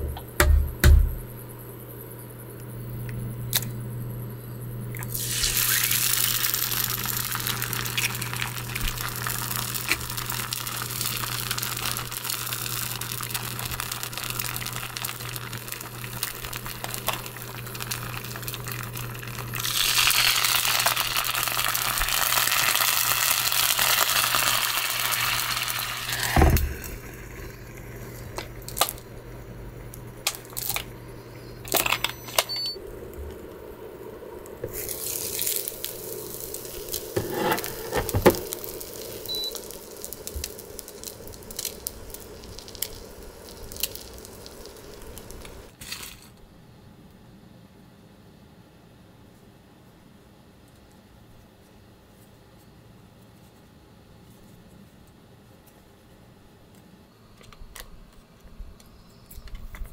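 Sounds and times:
low steady hum: 0.0 - 59.9
egg sizzling in frying pan: 5.0 - 31.7, 32.7 - 45.8
water hissing into steam: 5.1 - 28.8, 34.6 - 45.8.

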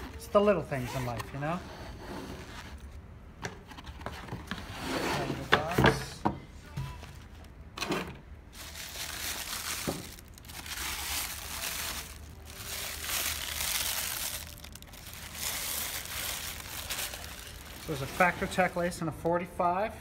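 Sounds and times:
tissue paper crinkling: 8.5 - 18.8.

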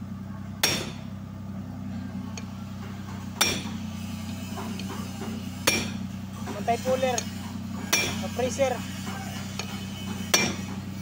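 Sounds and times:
steady low hum: 0.0 - 11.0
hammer striking steel bar: 0.6 - 1.1, 3.4 - 3.8, 4.6 - 6.0, 7.9 - 8.4, 9.1 - 10.8.

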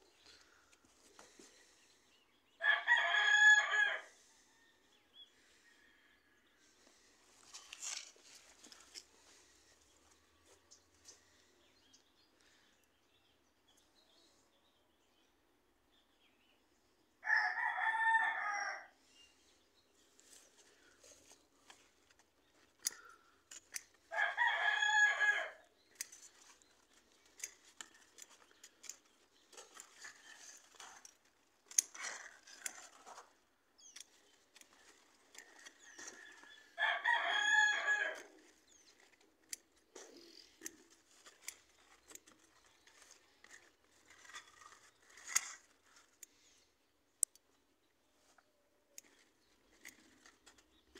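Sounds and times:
rooster crowing: 2.6 - 4.8, 17.2 - 19.0, 24.1 - 25.7, 36.8 - 38.3
leaves rustling and snapping: 7.4 - 9.6, 20.2 - 46.4.

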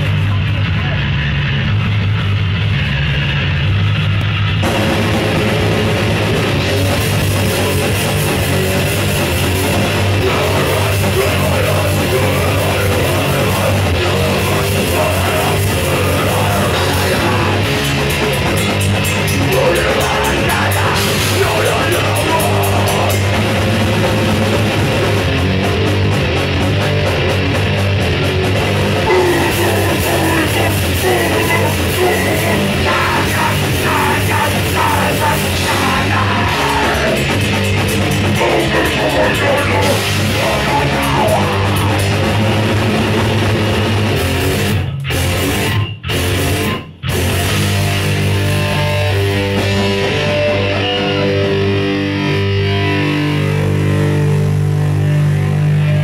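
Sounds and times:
bass guitar: 0.0 - 56.0
distorted electric guitar: 0.0 - 56.0
drums: 0.0 - 56.0
shouted vocals: 9.6 - 18.5, 19.4 - 23.8, 29.0 - 37.4, 38.2 - 42.6.

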